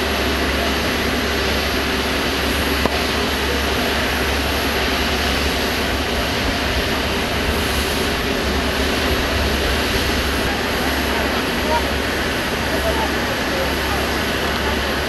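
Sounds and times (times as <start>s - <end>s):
jet aircraft roar: 0.0s - 15.0s.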